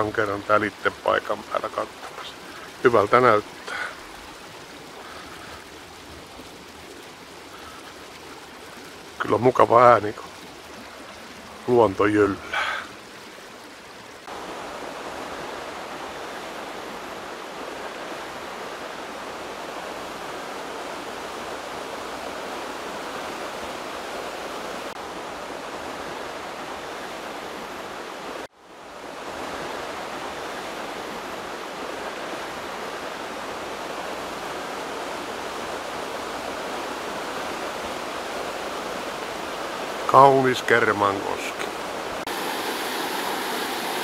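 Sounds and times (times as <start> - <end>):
water rushing over rocks: 0.0 - 44.0.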